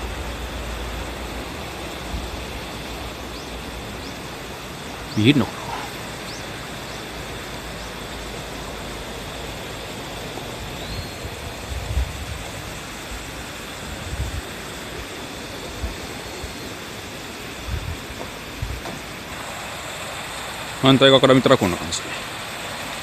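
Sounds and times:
outdoor background hiss: 0:00.0 - 0:23.0.

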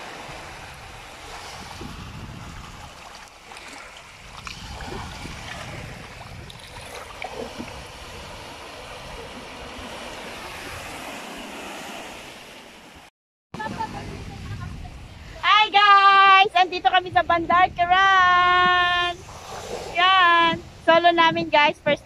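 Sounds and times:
wind rumbling on microphone: 0:00.0 - 0:12.2, 0:13.6 - 0:22.0
sea waves washing over pebbles: 0:00.0 - 0:12.9.

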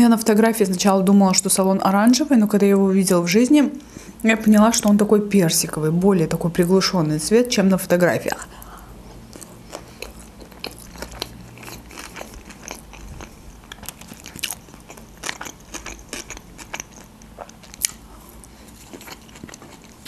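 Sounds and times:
person chewing food: 0:08.6 - 0:20.0.

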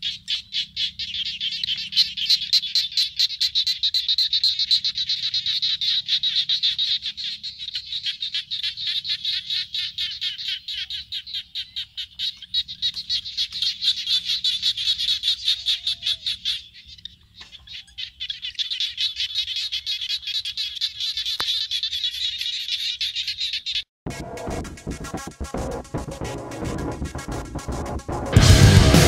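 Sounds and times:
frogs calling: 0:00.0 - 0:23.9.

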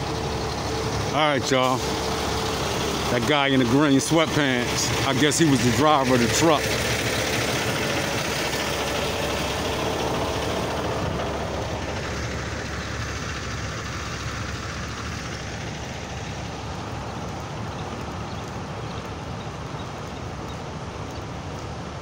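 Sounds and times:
tyre hiss on wet road: 0:00.0 - 0:05.4
vehicle engine noise: 0:00.0 - 0:22.0.

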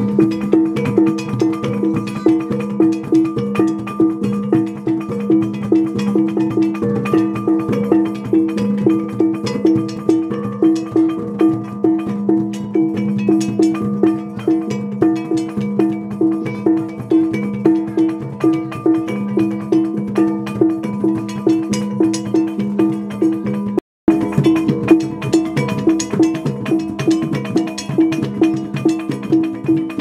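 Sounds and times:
pitched gong struck rhythmically: 0:00.0 - 0:19.5
drum beats: 0:00.0 - 0:30.0.

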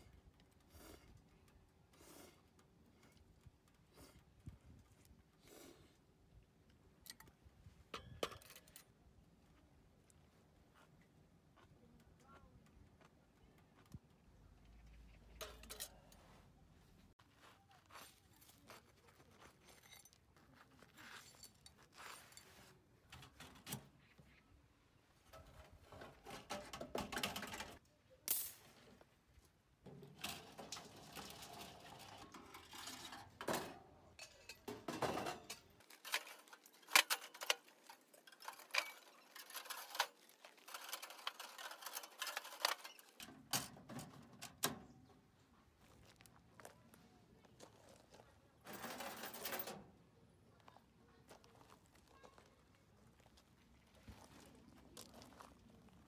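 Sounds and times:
metal clinks and scrapes: 0:08.0 - 0:08.9, 0:15.1 - 0:16.4, 0:19.4 - 0:23.9, 0:29.9 - 0:44.6, 0:48.6 - 0:49.9.

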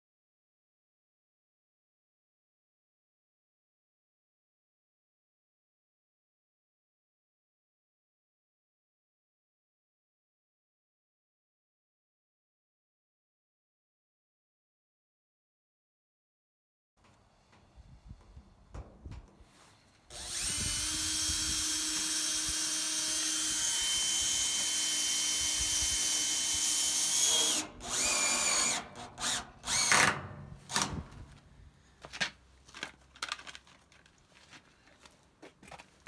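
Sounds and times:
cordless drill drilling metal: 0:20.1 - 0:31.4.

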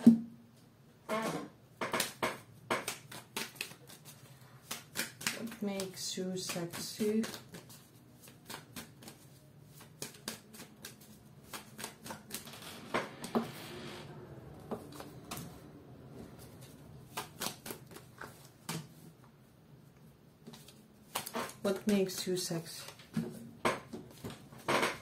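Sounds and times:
cards being shuffled: 0:01.9 - 0:13.3, 0:14.8 - 0:15.6, 0:16.4 - 0:19.0, 0:20.4 - 0:25.0.

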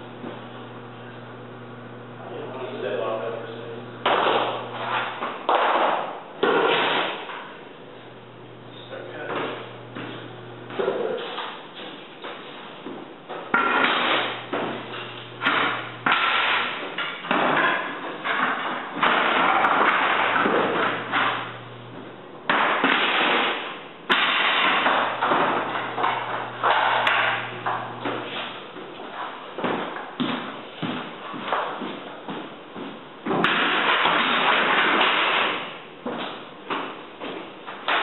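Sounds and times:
floorboards knocking and clattering: 0:09.2 - 0:38.0.

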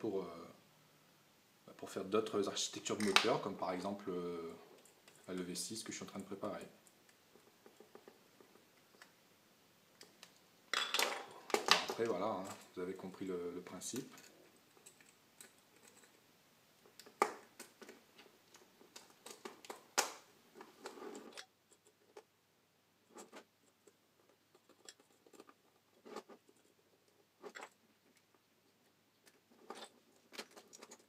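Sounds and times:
plastic parts clicking together: 0:16.8 - 0:22.3.

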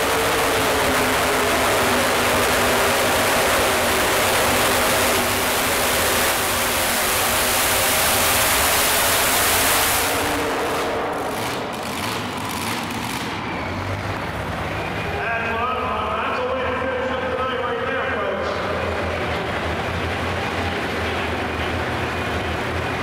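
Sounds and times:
engine popping: 0:00.0 - 0:14.2
tractor engine roaring under load: 0:00.0 - 0:23.0.

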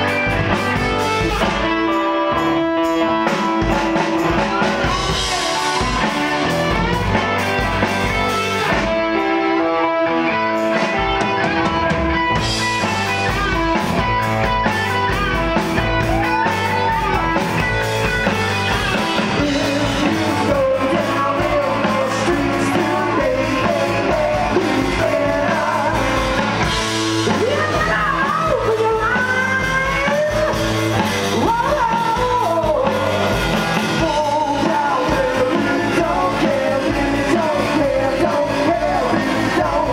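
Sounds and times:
drum kit: 0:00.0 - 0:39.9
electric guitars: 0:00.0 - 0:39.9
person singing: 0:00.0 - 0:39.9.

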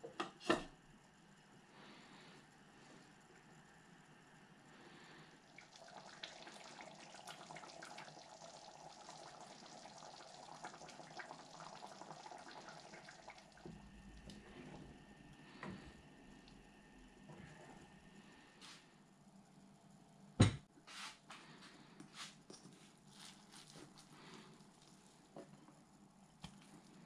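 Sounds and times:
curry bubbling and popping: 0:02.8 - 0:16.7, 0:22.4 - 0:27.0.

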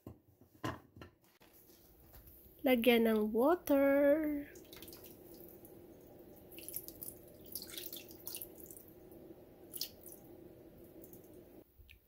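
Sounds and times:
sausages frying in a pan: 0:04.4 - 0:12.0.

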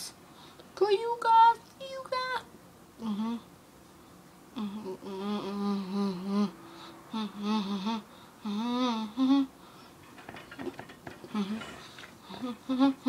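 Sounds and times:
girl humming a tune: 0:03.0 - 0:03.5, 0:04.5 - 0:09.6, 0:12.3 - 0:13.0.

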